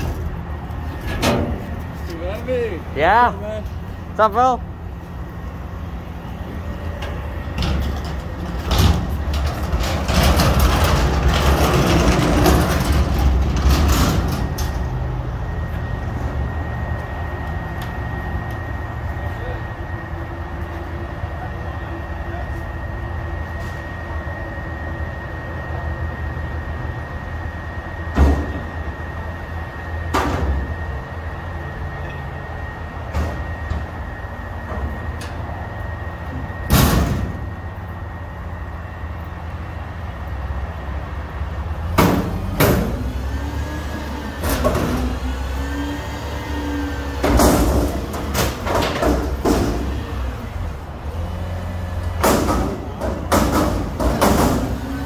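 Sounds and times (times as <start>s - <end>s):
diesel truck engine running: 0.0s - 55.0s
hydraulics whining: 0.0s - 55.0s
metal dumpster bangs: 1.0s - 1.8s, 36.6s - 37.6s, 47.2s - 50.3s, 52.2s - 55.0s.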